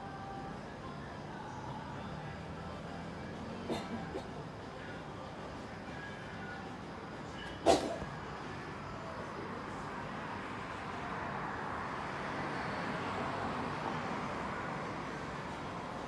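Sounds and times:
city traffic hum: 0:00.0 - 0:16.0.

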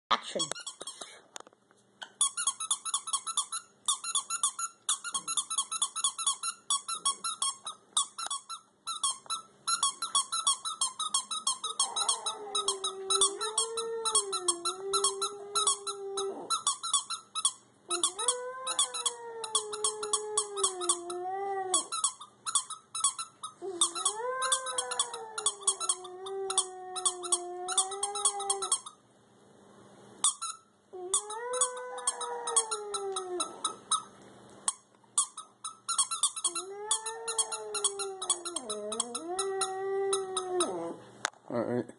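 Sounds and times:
squeaky toy squeaking: 0:00.1 - 0:01.2, 0:02.1 - 0:29.0, 0:30.2 - 0:40.9
dog howling: 0:11.4 - 0:16.6, 0:17.9 - 0:22.0, 0:23.6 - 0:28.8, 0:31.0 - 0:33.8, 0:36.5 - 0:41.0.

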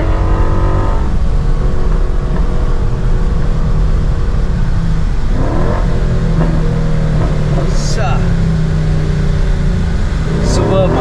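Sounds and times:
car exhaust drone from inside cabin: 0:00.0 - 0:11.0.

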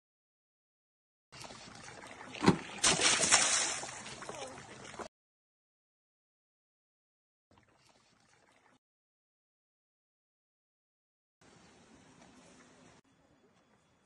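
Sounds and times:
water splashing and sloshing: 0:01.3 - 0:05.1, 0:07.5 - 0:08.8.

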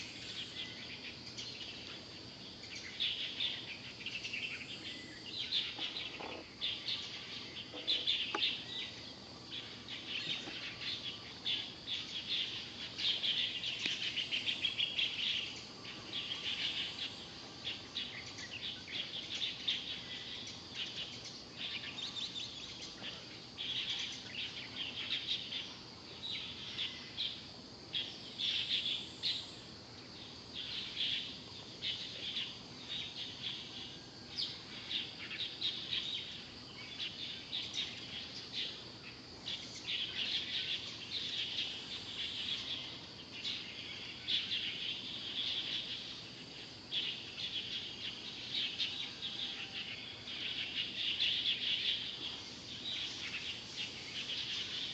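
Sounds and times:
faint outdoor hiss: 0:00.0 - 0:54.9
small birds chirping: 0:00.0 - 0:54.9.

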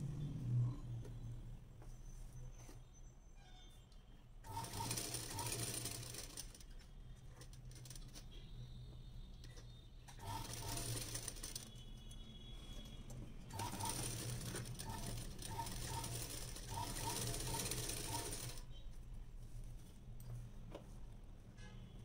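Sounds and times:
sewing machine stitching fabric: 0:04.5 - 0:08.3, 0:10.1 - 0:11.8, 0:13.5 - 0:18.7.

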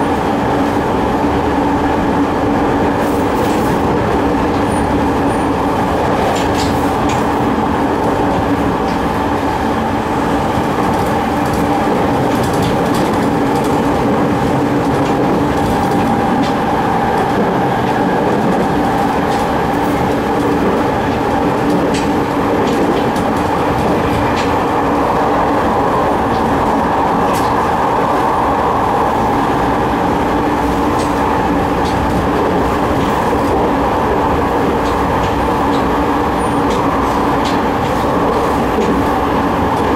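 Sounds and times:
train rumble and hum: 0:00.0 - 0:39.9
wheel clicks over rail joints: 0:17.3 - 0:24.6.

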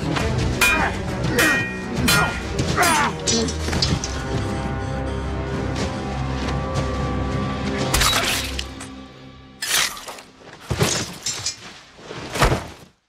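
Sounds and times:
background music: 0:00.0 - 0:11.0
metallic sword clashes: 0:00.6 - 0:03.6.

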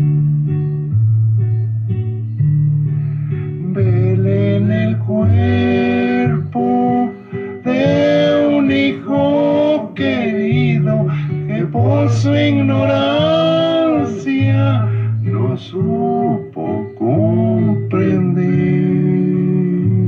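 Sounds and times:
bass notes: 0:00.0 - 0:20.0
guitar accompaniment: 0:00.0 - 0:20.0
man singing: 0:03.6 - 0:20.0.

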